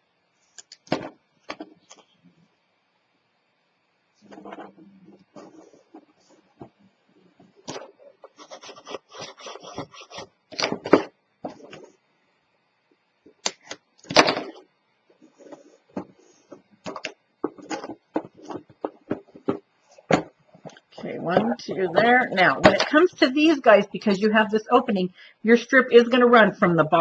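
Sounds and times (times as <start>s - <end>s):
paper rubbing and scraping: 4.2s - 6.5s, 7.7s - 10.7s
box knocking on mat: 16.9s - 20.4s.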